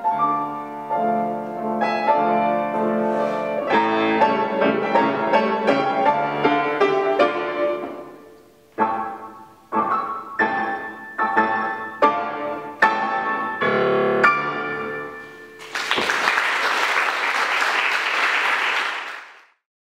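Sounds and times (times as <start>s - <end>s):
grand piano chords: 0.0s - 16.2s
audience applause: 15.6s - 19.5s.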